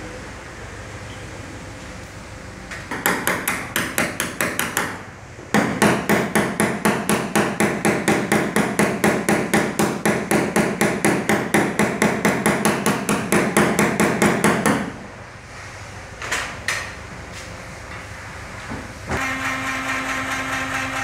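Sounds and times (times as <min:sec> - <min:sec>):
hammer tapping on metal: 0:02.9 - 0:05.0.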